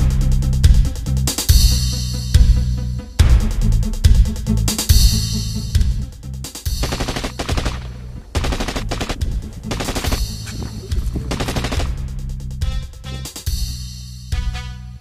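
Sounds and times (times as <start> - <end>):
action music with low bass: 0.0 - 15.0
automatic gunfire bursts: 6.8 - 12.2.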